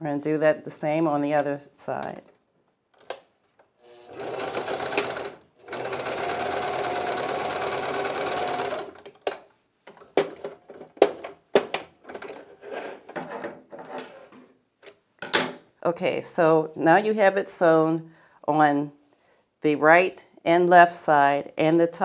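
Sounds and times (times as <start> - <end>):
electric sewing machine stitching: 3.8 - 9.1.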